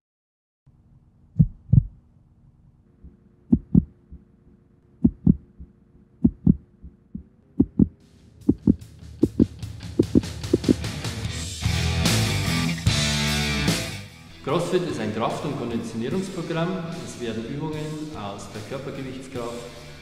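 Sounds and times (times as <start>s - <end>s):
heartbeat thumps: 1.4s - 2.0s, 3.0s - 4.3s, 5.0s - 10.8s.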